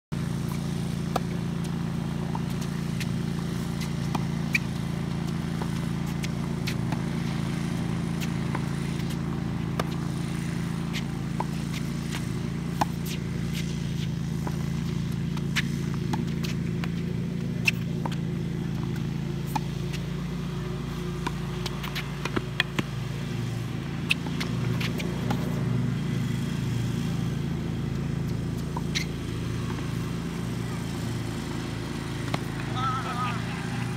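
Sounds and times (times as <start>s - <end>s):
steady low hum: 0.2s - 33.9s
ball bouncing on hard court: 0.3s - 33.3s
racket striking tennis ball: 0.3s - 33.9s.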